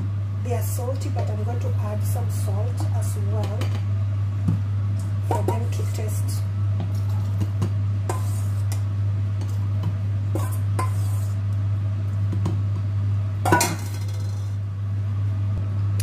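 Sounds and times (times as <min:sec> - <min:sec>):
steady low hum: 0:00.0 - 0:16.0
metal ladle scraping steel bowl: 0:08.1 - 0:08.7, 0:10.4 - 0:11.4.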